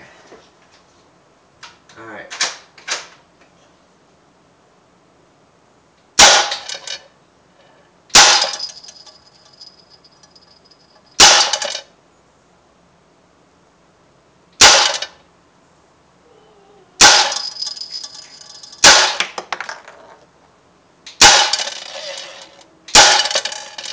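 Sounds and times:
air rifle shots: 6.2 - 6.9, 8.1 - 8.8, 11.2 - 11.8, 14.6 - 15.2, 17.0 - 17.8, 18.8 - 19.4, 21.2 - 22.2, 22.9 - 23.7
high metallic ring: 8.4 - 11.2, 17.0 - 18.9.

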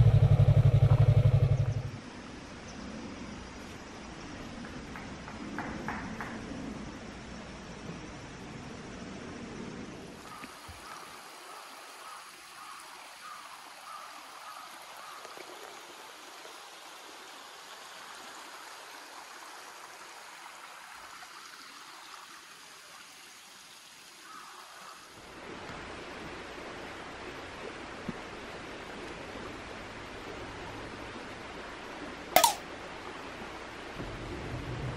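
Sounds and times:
stream babbling over rocks: 10.2 - 26.0.

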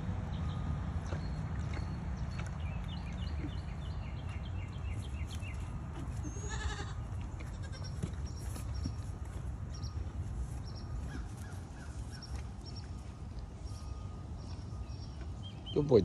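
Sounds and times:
birds chirping: 0.0 - 16.0
goat bleating: 6.1 - 8.0.

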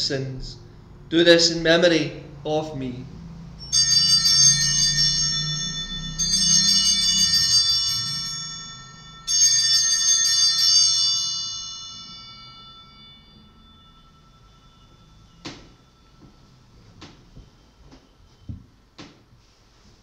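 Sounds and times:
small bells shaken: 3.5 - 16.9.

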